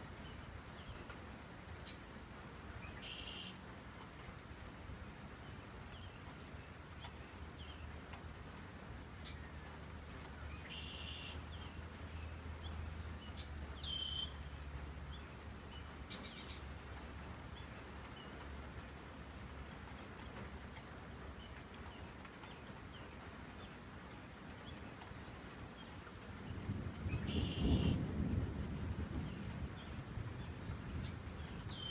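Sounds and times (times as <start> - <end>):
songbirds chirping and whistling: 9.2 - 20.6, 24.5 - 26.2, 27.1 - 28.0, 29.2 - 31.9.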